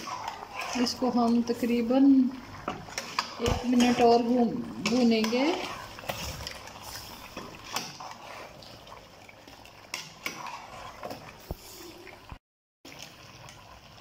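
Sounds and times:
metal ladle scraping steel pot: 0.0 - 1.9, 2.6 - 8.7, 9.9 - 11.6
oil sizzling: 0.0 - 14.0.

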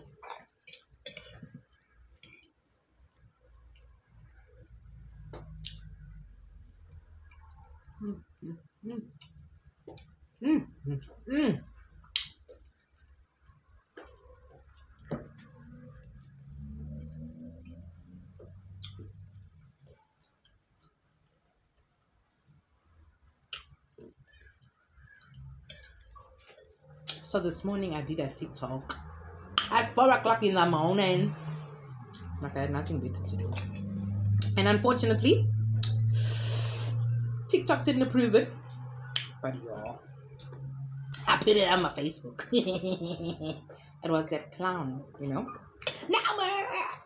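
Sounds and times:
low steady hum: 0.0 - 47.0
chewing clicks: 18.8 - 19.5.

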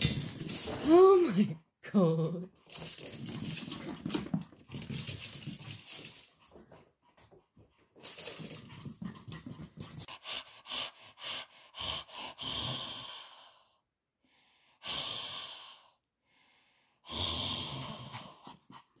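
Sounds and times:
paws scrabbling on wooden floor: 2.6 - 10.1.

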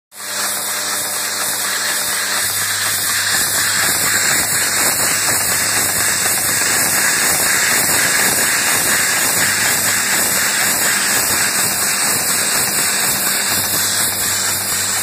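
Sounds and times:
machine mechanical rattle: 0.2 - 15.0
loud steady hiss: 0.4 - 15.0.

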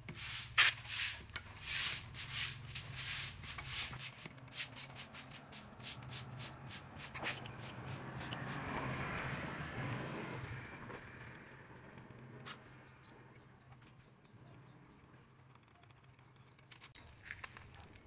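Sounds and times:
wrench metallic clicks and scrapes: 0.0 - 8.5, 15.4 - 18.0.

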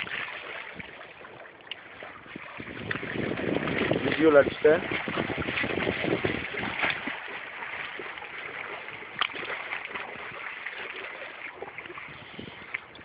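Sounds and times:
water lapping and splashing: 0.0 - 13.0.

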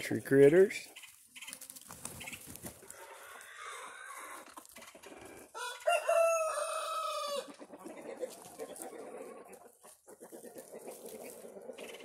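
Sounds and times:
chickens clucking: 0.0 - 12.0
rooster crowing: 5.5 - 7.5.

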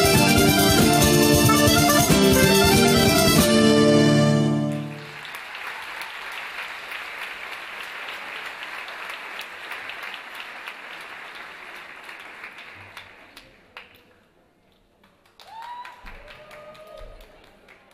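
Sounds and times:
audience applauding: 4.2 - 14.2, 15.0 - 17.9.

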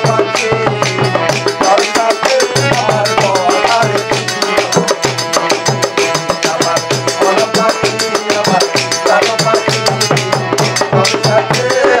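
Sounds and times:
man singing folk song: 0.0 - 4.2, 10.8 - 12.0
hand drum beat: 0.0 - 12.0.

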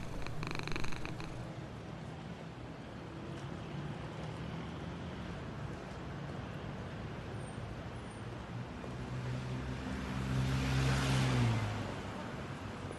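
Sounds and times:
background traffic noise: 0.0 - 12.9
vehicle passing by: 9.0 - 12.2.

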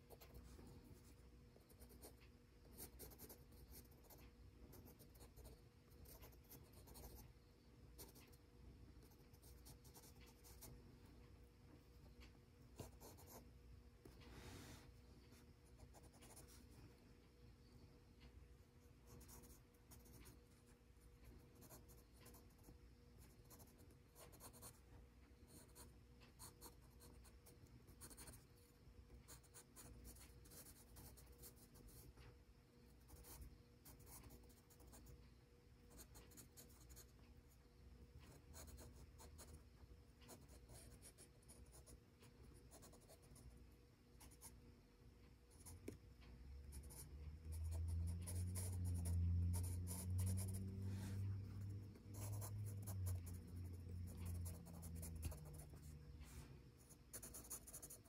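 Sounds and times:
pencil scratching on paper: 0.0 - 7.3, 8.0 - 8.4, 9.0 - 10.7, 12.8 - 13.5, 15.7 - 16.8, 19.1 - 20.4, 21.5 - 24.8, 25.5 - 28.4, 29.3 - 32.1, 33.0 - 35.1, 38.3 - 39.6, 40.3 - 42.0, 42.6 - 43.5, 46.8 - 56.0, 56.8 - 58.0
low hum: 44.7 - 57.8.

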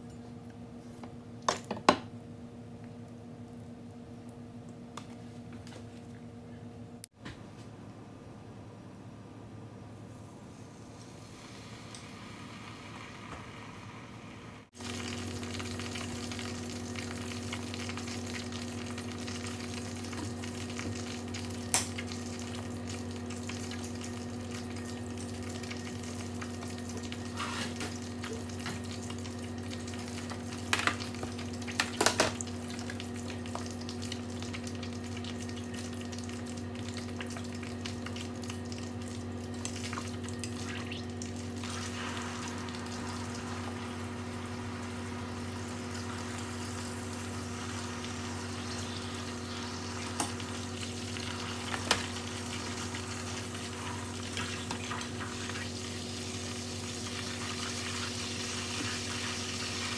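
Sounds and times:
meat sizzling in a pan: 14.8 - 24.5, 41.5 - 59.9.

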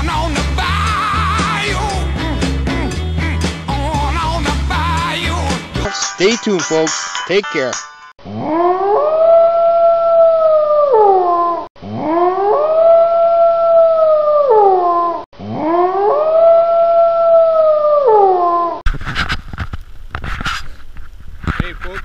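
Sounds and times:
wolf howling: 8.2 - 18.8.

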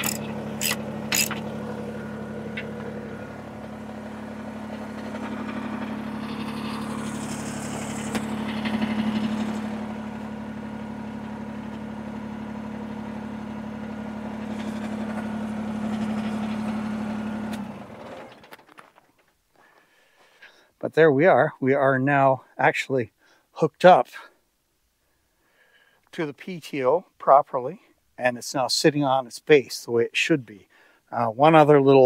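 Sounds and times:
diesel tractor engine idling: 0.0 - 18.5.

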